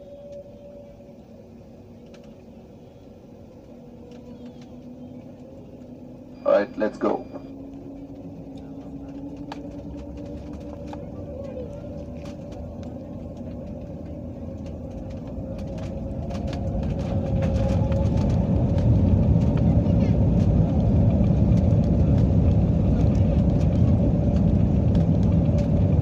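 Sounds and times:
jet engines spooling up: 0.0s - 26.0s
light clicks and rattles: 7.6s - 26.0s.

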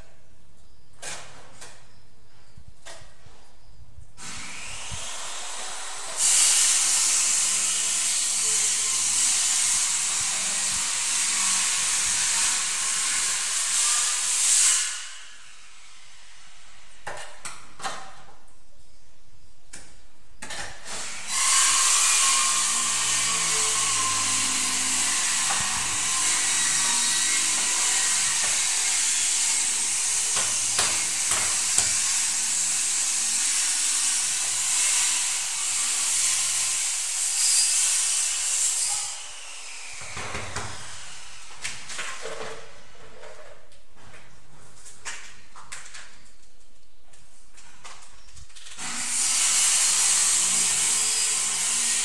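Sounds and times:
power tool hissing and whining: 4.2s - 17.0s, 21.0s - 41.8s, 48.8s - 52.0s.

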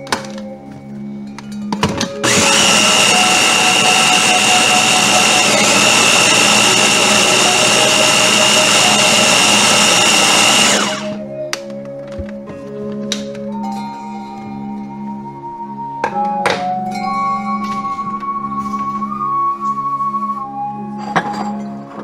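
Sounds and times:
blender motor whining: 2.2s - 11.2s.

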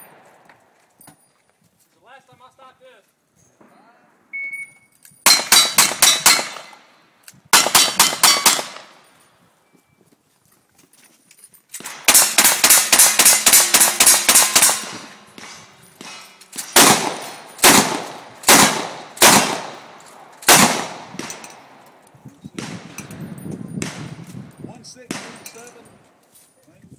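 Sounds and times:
sharp echoing gunshots: 5.2s - 9.0s, 11.8s - 26.1s.

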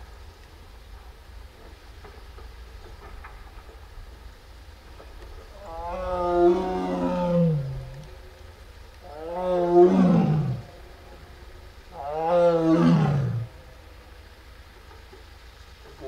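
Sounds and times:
tiger roaring: 5.5s - 8.2s, 9.0s - 11.2s, 11.9s - 13.7s.

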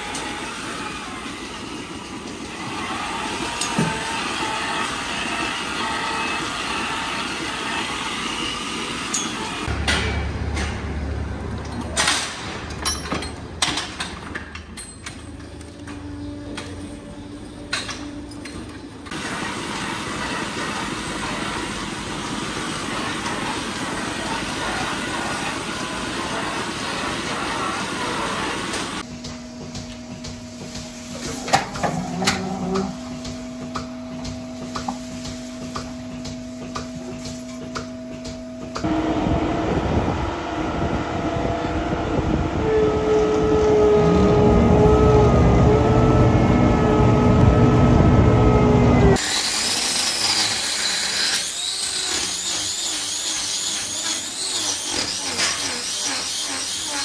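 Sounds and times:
feed mixer engine running: 0.0s - 9.8s, 38.8s - 57.0s
milking machinery noise: 0.0s - 13.6s, 15.3s - 57.0s
hoof-trimming tools working: 2.6s - 7.7s, 9.1s - 10.0s, 49.2s - 57.0s
machine hum with clicks: 29.0s - 40.8s, 46.7s - 48.2s.

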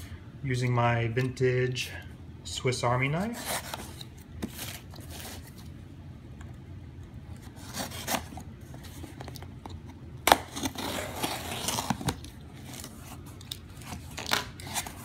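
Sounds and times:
tape tearing: 7.4s - 9.5s, 10.2s - 15.0s
knife scraping packing tape: 10.3s - 15.0s.

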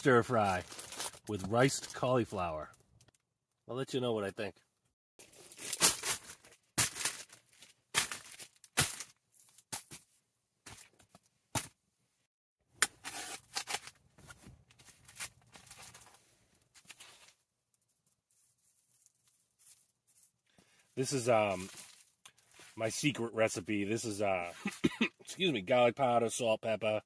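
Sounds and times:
plastic packaging tearing: 0.6s - 1.3s, 5.2s - 9.1s
soft plastic rustling: 13.6s - 23.0s.

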